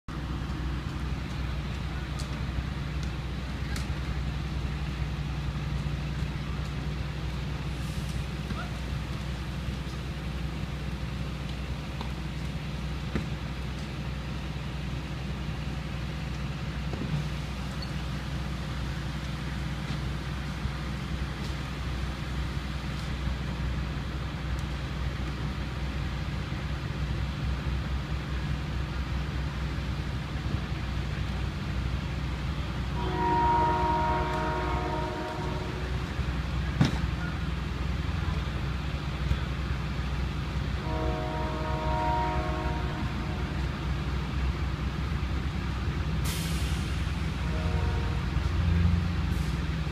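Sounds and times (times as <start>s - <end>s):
vehicles idling low rumble: 0.1s - 49.9s
multi-tone horn chord: 33.0s - 36.0s, 40.8s - 43.6s, 47.4s - 48.3s.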